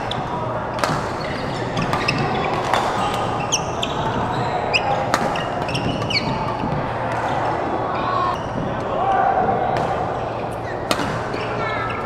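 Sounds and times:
background noise of play: 0:00.0 - 0:12.0
racket hitting shuttlecock: 0:00.8 - 0:03.3, 0:05.0 - 0:07.3, 0:10.8 - 0:11.4
shoe squeaks on court: 0:00.8 - 0:06.5.

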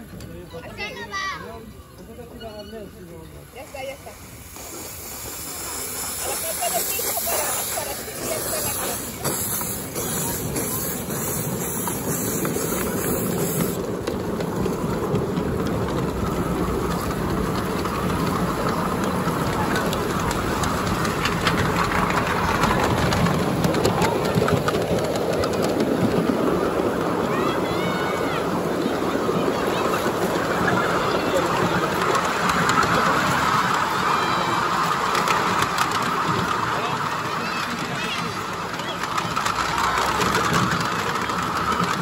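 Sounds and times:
model steam locomotive running: 0:00.0 - 0:42.0
wheels clicking on track: 0:00.0 - 0:42.0
high steam hiss: 0:03.5 - 0:14.7.

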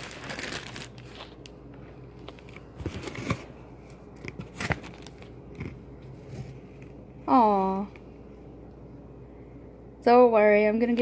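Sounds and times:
plastic and paper crinkling: 0:00.0 - 0:08.0.

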